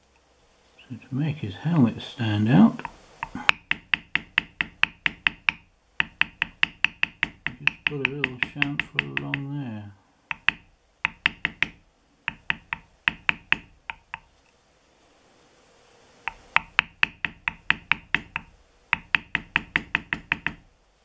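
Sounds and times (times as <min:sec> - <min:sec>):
mallet striking metal stamp: 0:03.2 - 0:09.5, 0:10.3 - 0:14.2, 0:16.3 - 0:20.6.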